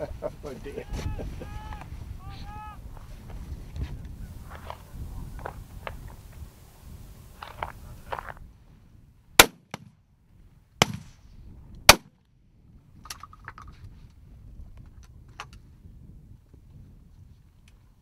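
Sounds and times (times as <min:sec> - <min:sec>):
shotgun shots: 0:09.4 - 0:09.9, 0:10.8 - 0:11.1.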